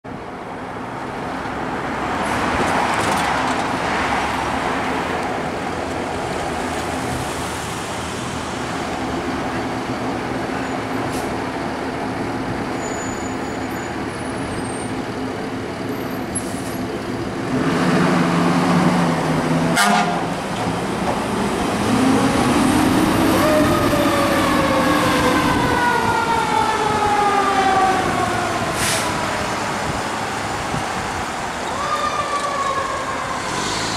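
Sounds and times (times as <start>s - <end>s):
low air horn blast: 19.7s - 20.4s.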